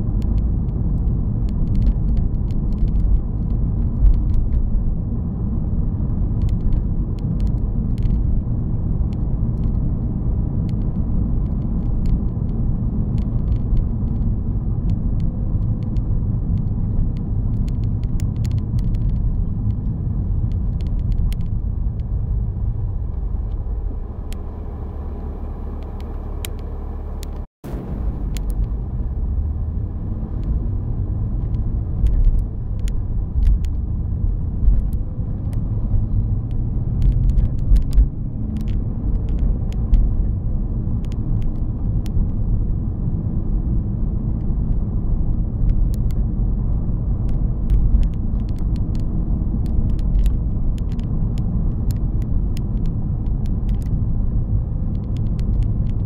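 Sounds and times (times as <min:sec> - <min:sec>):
car road and engine rumble: 0:00.0 - 0:56.0
light clicks and rattles: 0:49.6 - 0:54.1.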